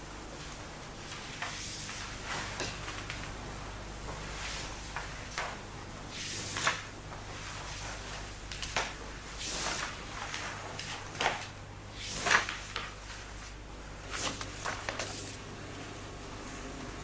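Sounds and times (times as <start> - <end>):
steady low hum: 0.0 - 17.0
paper rustling: 6.2 - 15.4.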